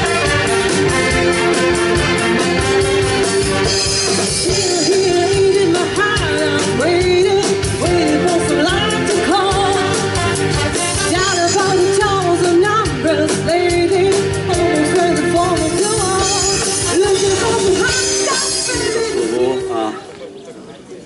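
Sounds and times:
big band playing: 0.0 - 20.2
woman singing: 4.4 - 19.9.

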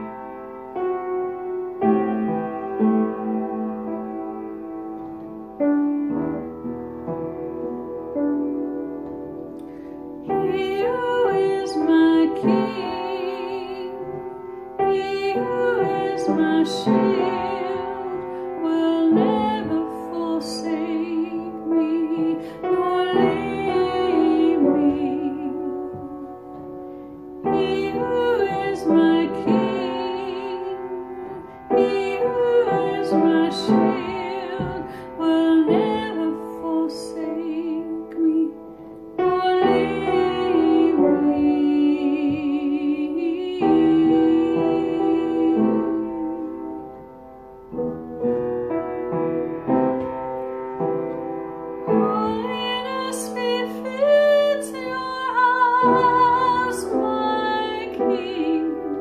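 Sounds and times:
piano accompaniment: 0.0 - 59.0
woman singing with vibrato: 10.2 - 26.6, 27.3 - 47.1, 51.8 - 59.0.

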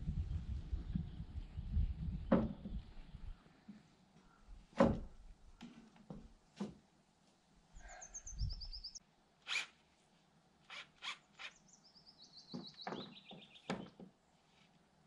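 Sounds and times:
songbird trilling: 7.8 - 9.0.

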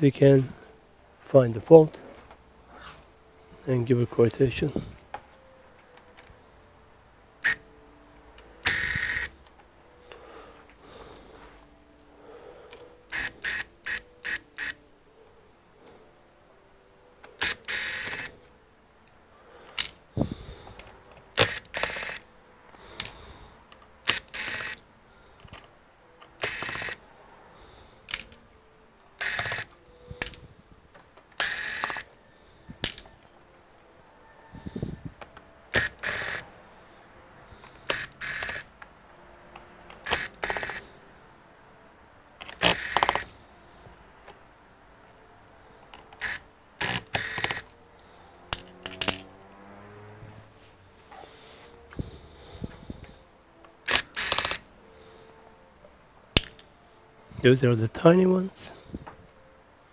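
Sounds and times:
electric screwdriver whirring: 7.4 - 7.6, 8.6 - 9.3, 13.1 - 14.8, 17.4 - 18.4, 21.4 - 22.2, 24.0 - 24.8, 26.4 - 27.0, 29.2 - 30.4, 31.4 - 32.1, 35.7 - 36.4, 37.7 - 38.7, 40.0 - 40.9, 42.4 - 43.4, 46.2 - 47.7, 53.8 - 54.6.

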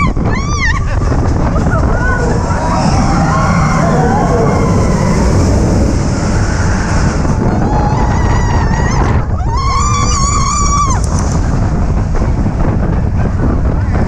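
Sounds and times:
roller coaster rumbling on track: 0.0 - 14.0
riders screaming: 1.6 - 11.1.

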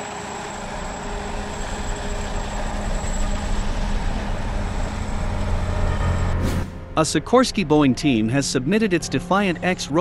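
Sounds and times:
helicopter rotor and engine noise: 0.0 - 6.4.

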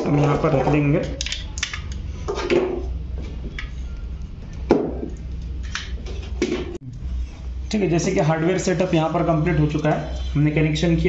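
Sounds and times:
low hum: 2.9 - 11.0.

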